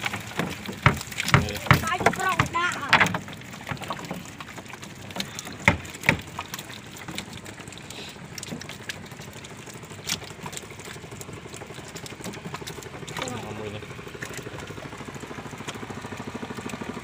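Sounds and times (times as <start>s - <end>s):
fish flopping on boat floor: 0.0s - 16.7s
sharp knocks: 0.3s - 3.3s, 5.6s - 6.3s.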